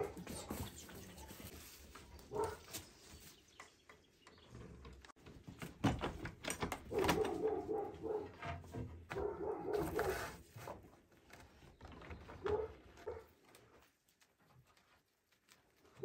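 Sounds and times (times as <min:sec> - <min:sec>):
wooden knocks and bumps: 0:04.2 - 0:09.6.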